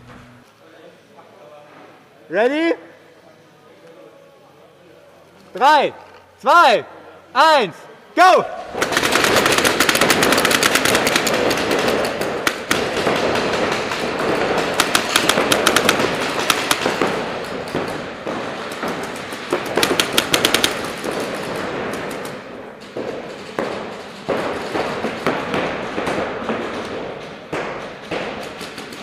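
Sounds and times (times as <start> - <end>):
paintball markers firing: 8.7 - 29.0.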